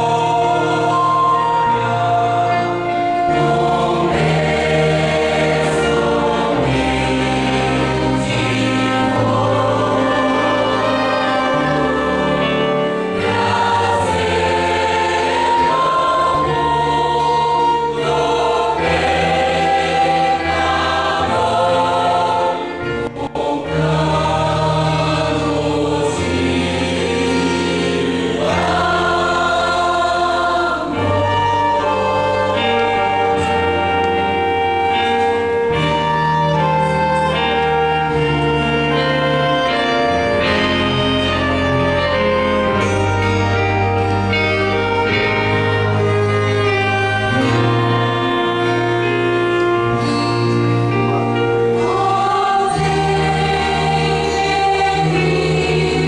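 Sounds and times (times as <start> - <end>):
mixed choir singing: 0.0 - 56.0
small band accompanying: 0.0 - 56.0.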